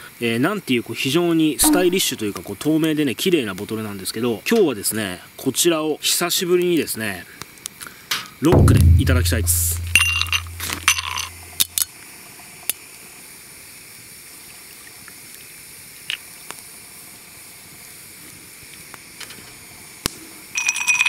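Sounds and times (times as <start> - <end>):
ice cubes clinking in glass: 20.6 - 21.0.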